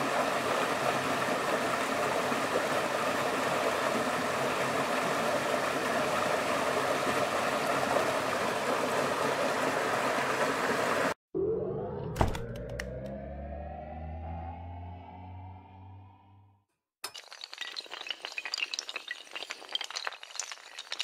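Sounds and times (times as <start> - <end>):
water rushing over rocks: 0.0 - 11.2
music with rising tones: 11.3 - 16.7.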